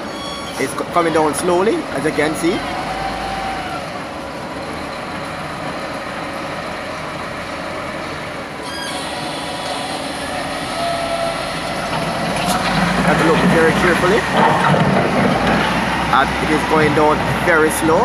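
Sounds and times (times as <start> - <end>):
brief high squeal: 0.0 - 0.8, 8.6 - 11.7
road traffic: 0.0 - 18.0.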